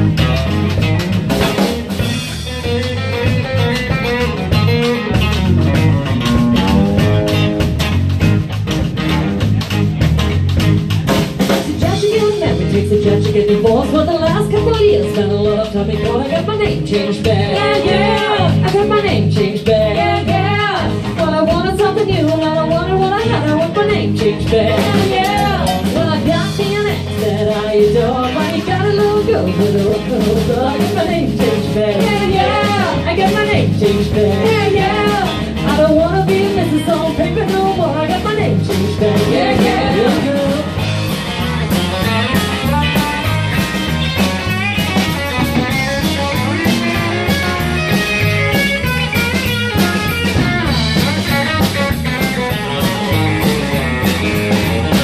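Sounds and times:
bass guitar: 0.0s - 55.0s
drum kit: 0.0s - 55.0s
electric guitar: 0.0s - 55.0s
rock band playing: 0.0s - 55.0s
person singing: 11.6s - 40.8s.

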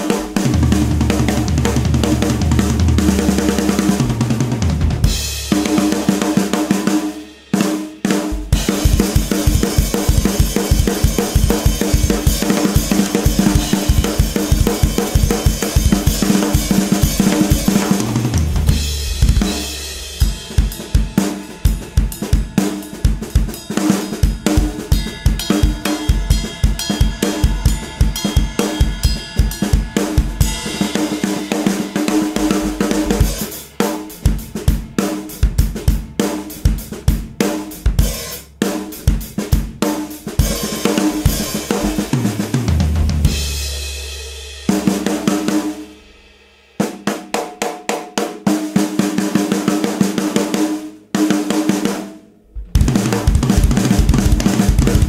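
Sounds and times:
drum kit playing beat: 0.0s - 55.0s
cymbals ringing: 20.0s - 34.1s.

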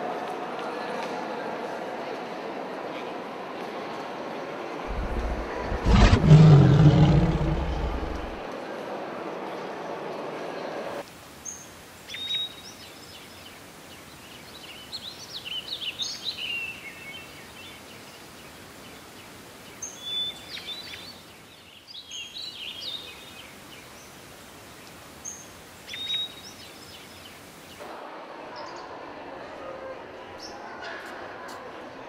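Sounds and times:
steady nature ambience hiss: 2.4s - 32.0s
birds chirping: 4.9s - 8.4s.

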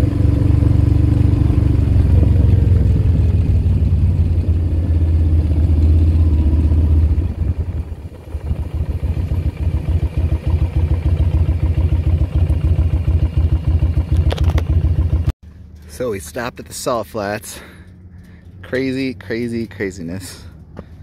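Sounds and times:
motorcycle engine running: 0.0s - 16.8s.

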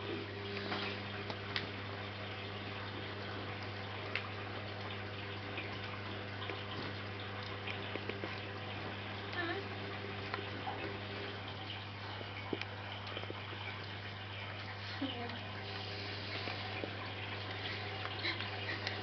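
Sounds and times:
faint clicks and taps: 5.8s - 9.5s, 12.4s - 19.0s.

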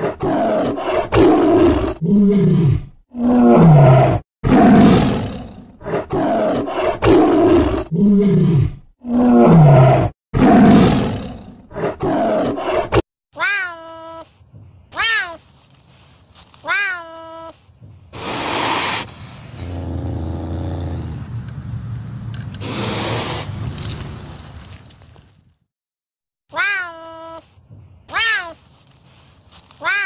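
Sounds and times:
tiger growling roar: 0.0s - 13.0s, 19.5s - 21.4s.

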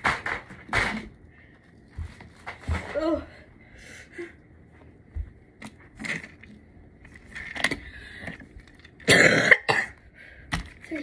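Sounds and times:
person coughing: 9.0s - 10.0s.

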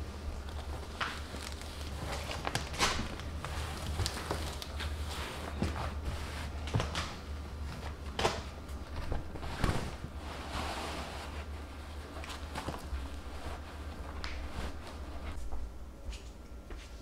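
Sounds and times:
low steady hum: 0.0s - 17.0s
cloth rustling: 8.8s - 15.4s.

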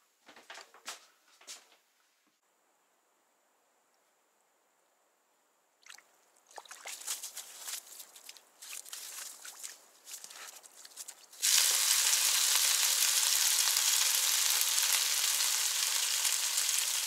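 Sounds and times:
fish splashing out of water: 5.8s - 7.2s
water dripping and sloshing: 5.8s - 11.6s
fish flopping on wet ice: 6.6s - 11.6s.

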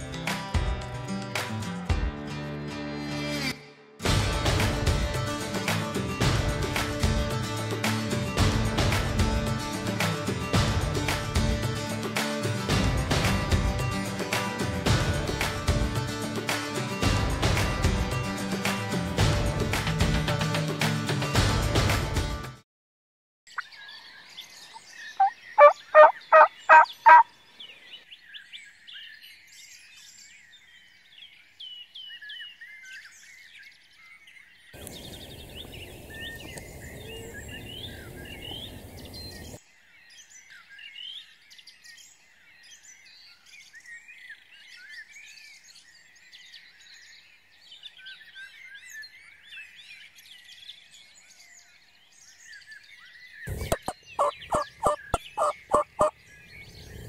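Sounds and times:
songbirds chirping and singing: 23.5s - 57.0s
turkey calls: 24.8s - 27.3s, 53.5s - 56.2s.

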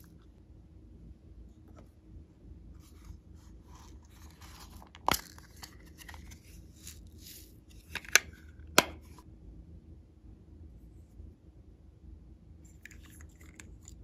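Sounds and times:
sequins rustling and scraping: 2.8s - 8.5s.

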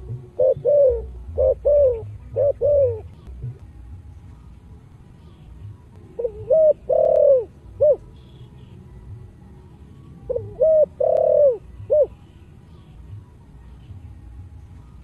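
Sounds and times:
dove cooing: 0.0s - 3.6s, 6.1s - 8.7s, 10.2s - 12.9s.

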